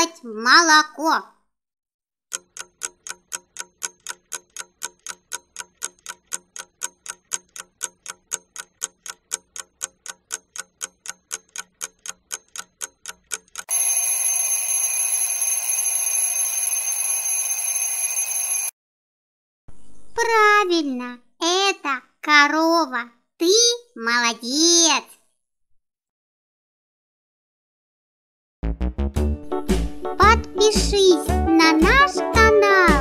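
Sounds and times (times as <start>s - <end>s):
clock ticking: 2.3s - 14.3s
alarm clock bell ringing: 13.7s - 18.7s.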